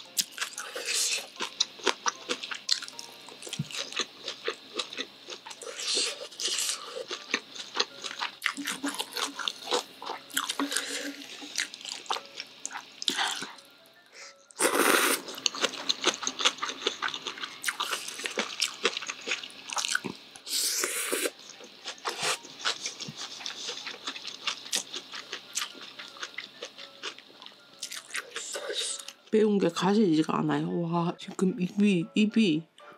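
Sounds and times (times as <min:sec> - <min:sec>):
chewing and mouth clicks: 0:00.2 - 0:13.6, 0:15.3 - 0:20.2, 0:21.5 - 0:29.2
slurping noodles: 0:14.6 - 0:15.4.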